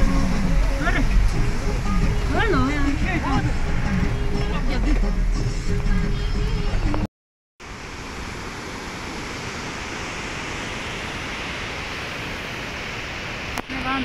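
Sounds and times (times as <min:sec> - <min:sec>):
river rushing: 0:00.0 - 0:07.0, 0:07.6 - 0:14.0
music in a vehicle: 0:00.0 - 0:07.1
vehicle engine noise: 0:00.0 - 0:14.0.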